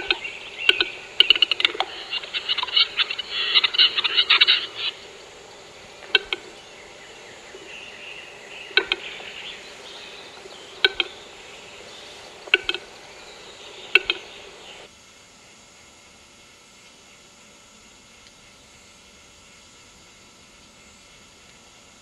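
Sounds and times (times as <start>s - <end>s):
bird double clicks: 0.0s - 1.9s, 6.0s - 6.5s, 8.7s - 9.2s, 10.8s - 11.3s, 12.4s - 12.9s, 13.9s - 14.3s.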